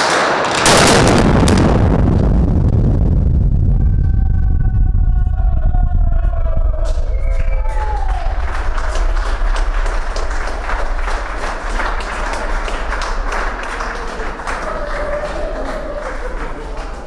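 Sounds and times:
crowd applauding: 0:00.0 - 0:00.6, 0:06.8 - 0:17.0
low hum: 0:01.0 - 0:14.9.

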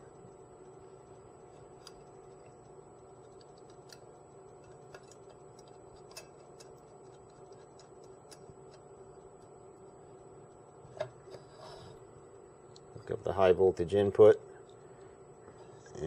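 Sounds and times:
electrical hum: 0:00.0 - 0:16.0
small clicks and ticks: 0:01.5 - 0:10.7.

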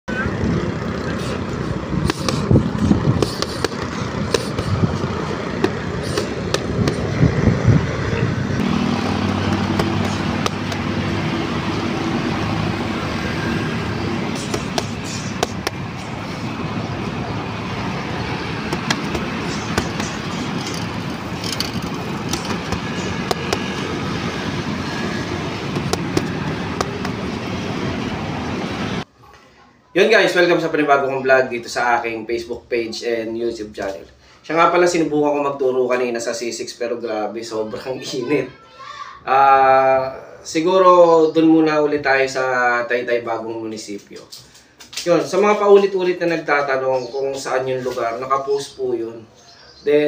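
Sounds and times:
engine hum: 0:00.1 - 0:29.1
road traffic passing: 0:00.1 - 0:50.0
boxing gloves slapping mitts: 0:02.0 - 0:02.6, 0:03.2 - 0:04.7, 0:05.6 - 0:07.1, 0:09.2 - 0:10.9, 0:14.3 - 0:15.9, 0:18.7 - 0:20.8, 0:21.5 - 0:23.8, 0:25.8 - 0:27.2.

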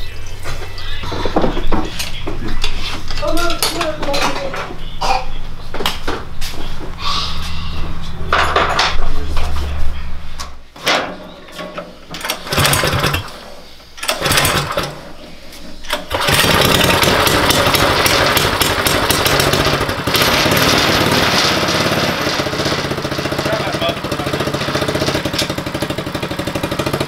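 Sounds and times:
engine pull-start: 0:12.2 - 0:13.4, 0:14.0 - 0:15.0, 0:15.9 - 0:27.0
small engine running: 0:12.4 - 0:13.3, 0:14.0 - 0:14.9, 0:16.1 - 0:27.0.

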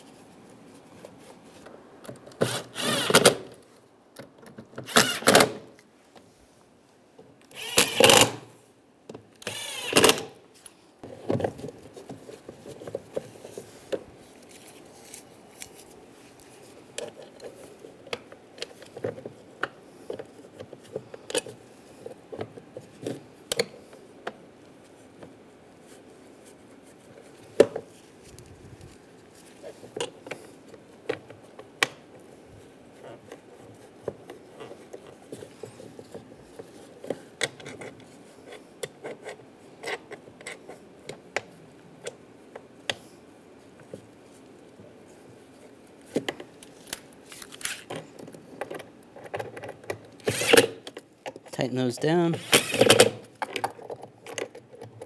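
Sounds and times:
power screwdriver running: 0:02.4 - 0:03.4, 0:04.9 - 0:05.5, 0:07.5 - 0:08.4, 0:09.4 - 0:10.3, 0:50.2 - 0:50.7, 0:52.3 - 0:53.2.

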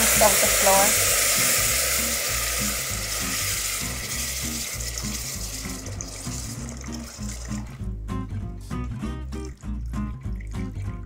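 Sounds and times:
water sizzling in hot oil: 0:00.0 - 0:07.8.

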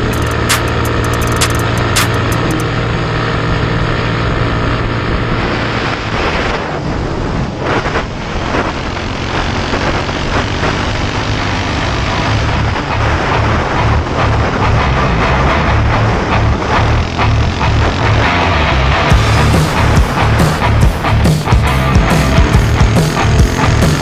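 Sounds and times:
small engine running: 0:00.0 - 0:05.8, 0:21.7 - 0:24.0
wind rushing over microphone: 0:04.5 - 0:18.1.

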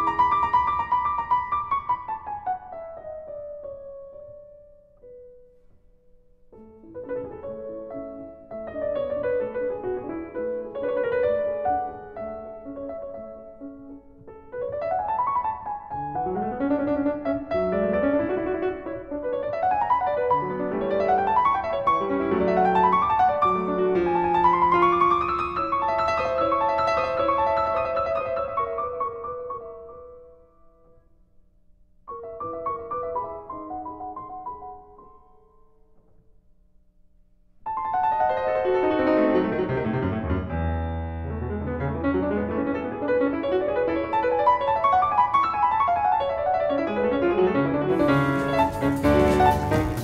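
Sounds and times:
piano music: 0:00.0 - 0:31.0, 0:32.1 - 0:36.0, 0:37.6 - 0:50.0.

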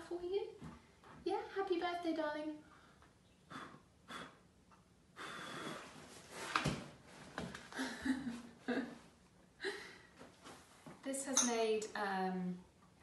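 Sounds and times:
person blowing out candle: 0:03.4 - 0:04.5, 0:05.1 - 0:06.0.

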